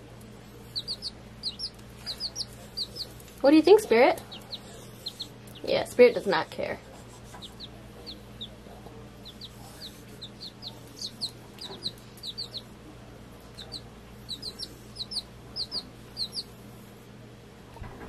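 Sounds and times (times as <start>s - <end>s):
steady low hum: 0.0s - 18.0s
chicks peeping: 0.6s - 6.4s, 7.0s - 12.7s, 13.4s - 16.6s.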